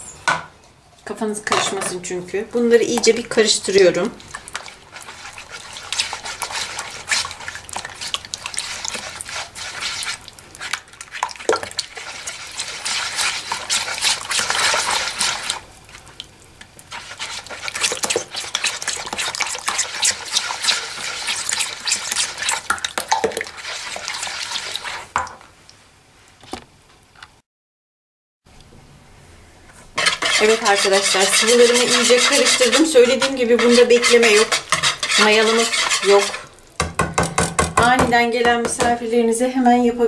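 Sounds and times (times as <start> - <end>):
whisk beating liquid in a bowl: 2.9 - 16.0, 16.9 - 25.1, 30.0 - 37.9.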